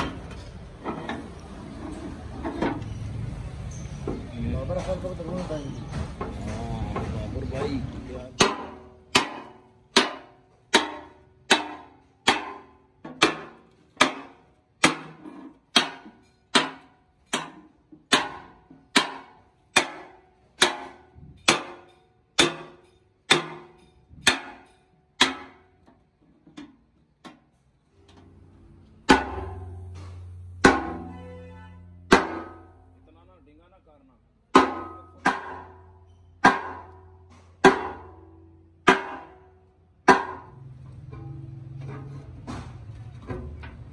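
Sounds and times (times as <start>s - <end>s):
hammer striking steel plate: 8.2s - 25.8s, 29.0s - 31.5s, 32.1s - 32.9s, 34.5s - 43.8s.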